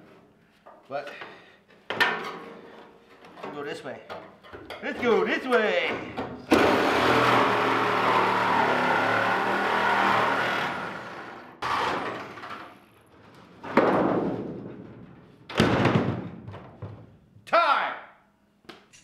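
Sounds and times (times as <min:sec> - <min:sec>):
sheet metal clanks: 0:01.9 - 0:06.5
reciprocating saw cutting sheet steel: 0:06.5 - 0:12.4.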